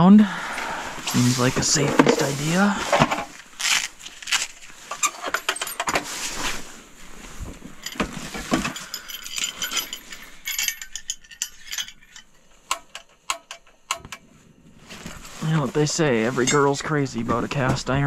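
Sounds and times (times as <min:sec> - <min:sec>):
metal camp stove parts clinking: 0:04.8 - 0:06.2, 0:07.7 - 0:14.2.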